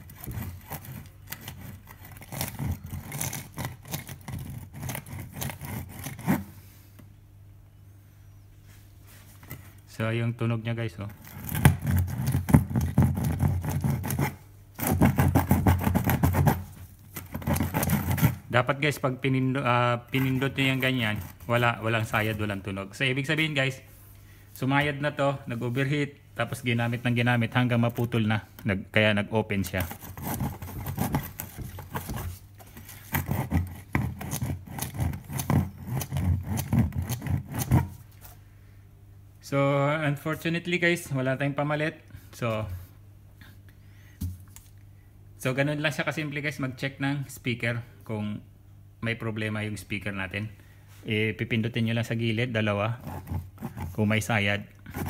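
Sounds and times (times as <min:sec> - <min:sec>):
speaker coil gritty rasp: 0:00.0 - 0:06.6, 0:11.1 - 0:18.7, 0:20.1 - 0:22.6, 0:29.6 - 0:38.2, 0:52.7 - 0:55.0
speaker coil scraping: 0:11.0 - 0:22.8.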